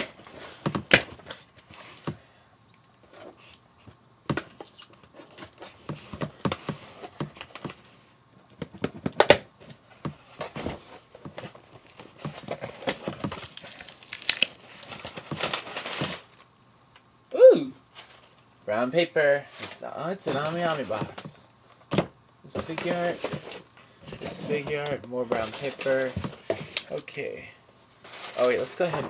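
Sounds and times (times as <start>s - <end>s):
packing paper crinkling: 9.6s - 16.5s, 24.2s - 27.1s
packing tape tearing: 11.9s - 16.4s.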